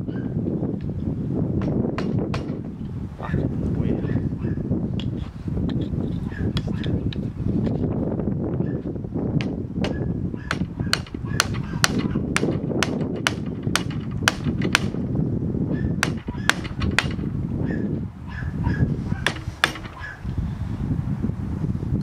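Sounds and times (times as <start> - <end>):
hammer striking steel chisels: 9.4 - 15.0, 16.0 - 17.2, 19.2 - 20.2.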